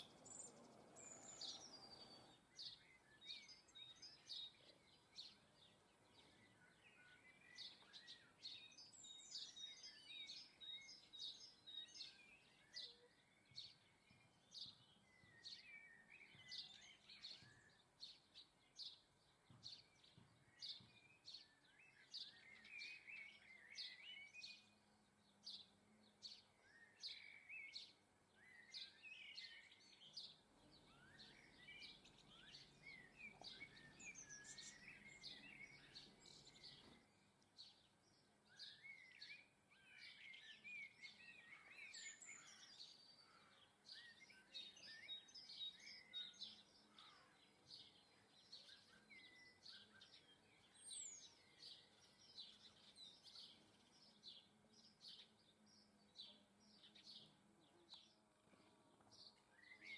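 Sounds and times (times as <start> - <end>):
songbirds chirping and twittering: 0.0 - 59.9.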